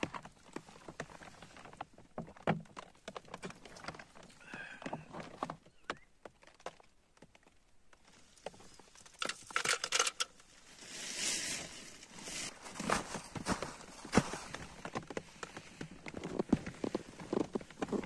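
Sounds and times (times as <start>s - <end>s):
soft rustle: 10.4s - 18.0s.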